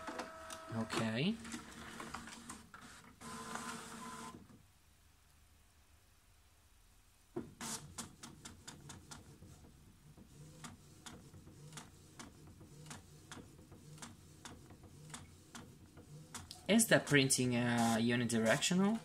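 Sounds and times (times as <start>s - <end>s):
printer motor whir: 0.0s - 1.0s.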